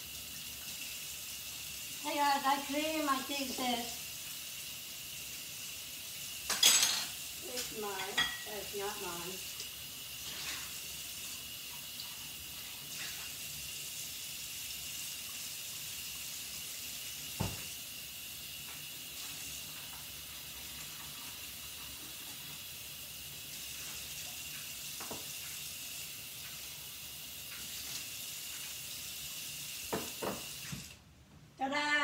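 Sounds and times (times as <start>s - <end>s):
tap running into sink: 17.3s - 17.8s, 24.9s - 25.5s, 29.9s - 31.0s
dish knocking against sink: 17.4s - 17.6s, 29.9s - 30.5s.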